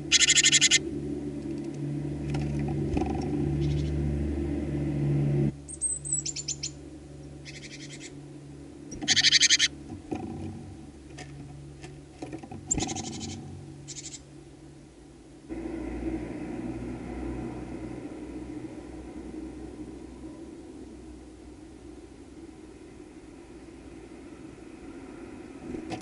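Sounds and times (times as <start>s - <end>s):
birds rattling calls: 0.0s - 0.9s, 2.9s - 4.0s, 5.7s - 6.8s, 7.4s - 8.2s, 8.9s - 9.8s, 12.6s - 14.2s
low steady rumble: 0.0s - 26.0s.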